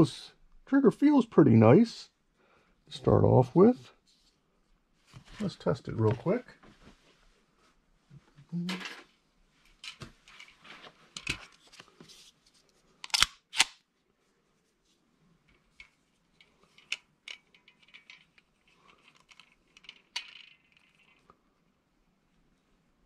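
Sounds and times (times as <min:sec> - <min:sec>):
metal clicks and rattles: 0:15.7 - 0:21.4.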